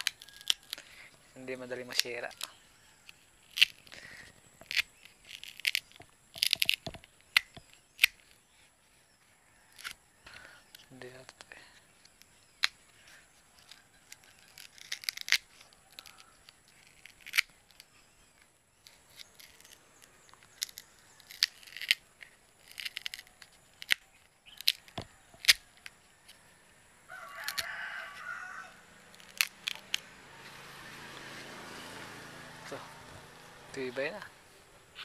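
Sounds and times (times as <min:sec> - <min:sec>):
leaf stalk snapping: 0:00.0 - 0:00.9, 0:01.5 - 0:08.4, 0:13.6 - 0:26.4, 0:27.2 - 0:28.3, 0:29.1 - 0:30.1
rasping tear: 0:00.0 - 0:34.2.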